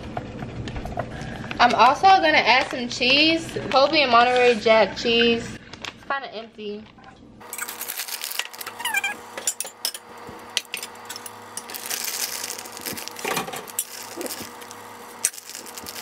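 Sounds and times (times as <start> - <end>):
plastic bag rustling: 7.4 - 9.4, 10.1 - 16.0.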